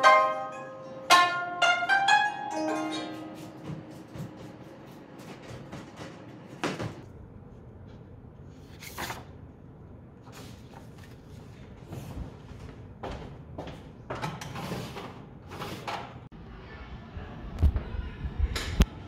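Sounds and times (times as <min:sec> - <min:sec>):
paper rustling: 0:08.6 - 0:09.4, 0:10.2 - 0:12.0.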